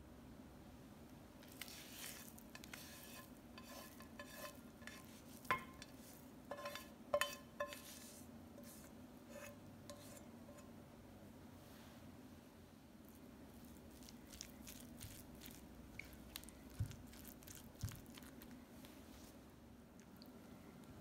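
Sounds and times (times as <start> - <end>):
spatula scraping frying pan: 1.5 - 10.7.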